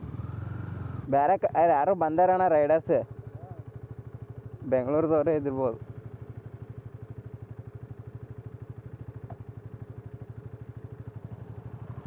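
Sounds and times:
motorcycle engine idling: 0.0 - 12.0.

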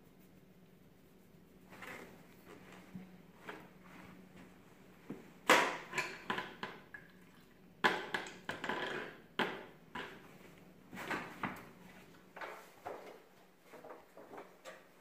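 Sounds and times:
cans and tools knocking and clinking: 7.8 - 10.2.

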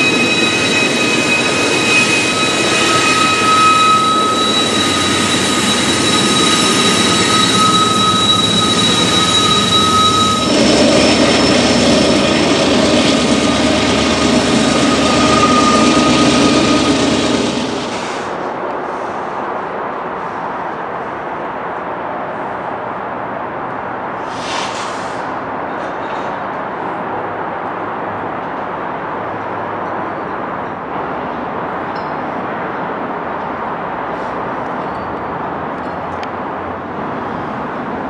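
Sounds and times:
high wheel squeal: 0.0 - 18.4
locomotive engine rumble: 0.0 - 18.4
train rolling past: 0.0 - 38.0.

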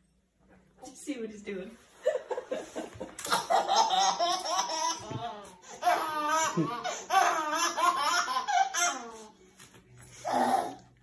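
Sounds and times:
baby giggling: 3.2 - 9.3.

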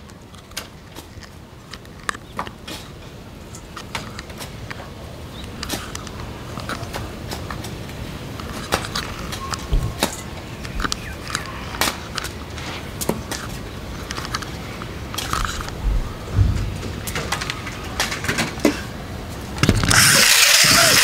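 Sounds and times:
plastic toy clicks and knocks: 19.6 - 21.0.

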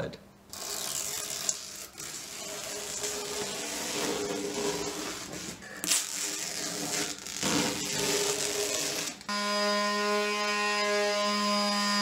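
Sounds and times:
masking tape being peeled: 0.5 - 9.3.

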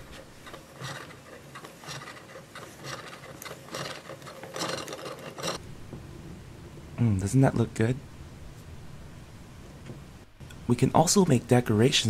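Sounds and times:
plastic toy mechanism ratcheting: 0.4 - 5.6.

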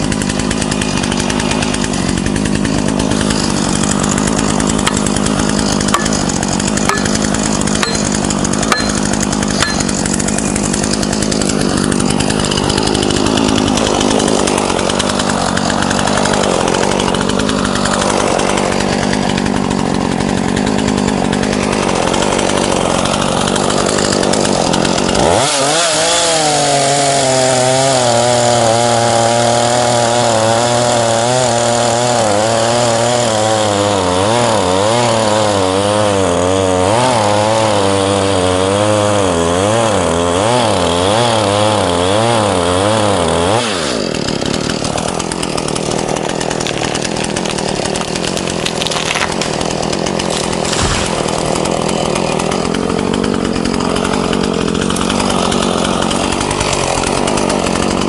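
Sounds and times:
chainsaw cutting into tree trunk: 0.0 - 58.0.

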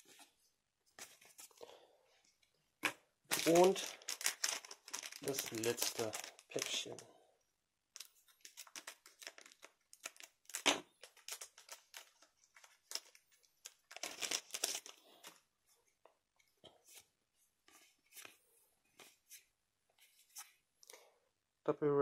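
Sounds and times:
cards rustling: 2.8 - 7.1, 8.0 - 15.5
foil wrapper crinkling and tearing: 3.3 - 7.0, 8.0 - 15.4.

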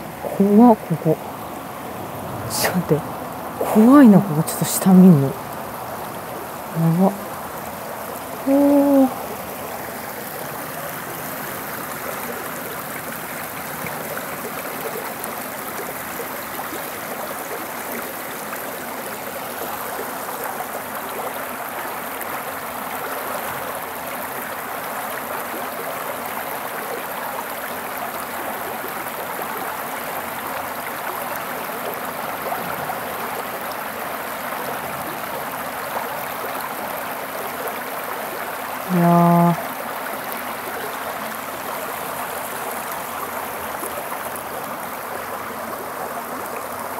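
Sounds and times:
river water rushing: 0.0 - 38.9, 39.6 - 46.9.

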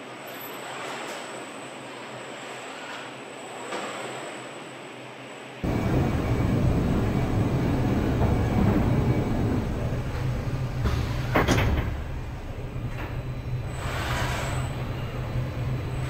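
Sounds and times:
car rumbling and rattling: 5.6 - 13.2.

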